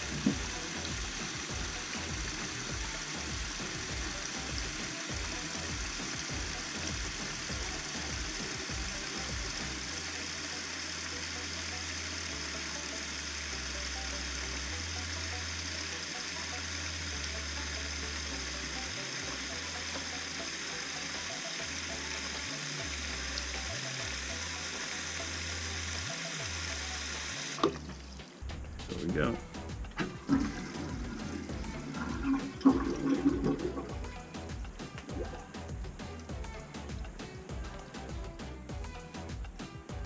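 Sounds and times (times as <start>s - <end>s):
faucet water running into sink: 0.0s - 28.2s, 28.9s - 37.2s.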